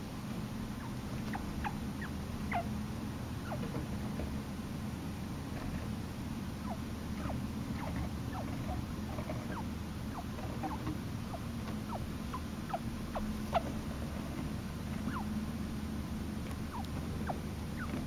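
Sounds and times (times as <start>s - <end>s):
baby chinchilla peeping: 0.7s - 2.8s, 3.4s - 3.8s, 6.6s - 15.6s, 16.4s - 18.0s.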